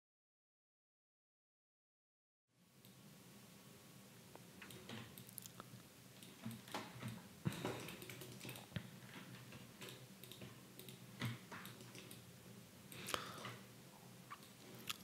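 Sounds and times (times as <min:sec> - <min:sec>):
keyboard and mouse clicks: 0:04.6 - 0:05.6, 0:06.2 - 0:12.3.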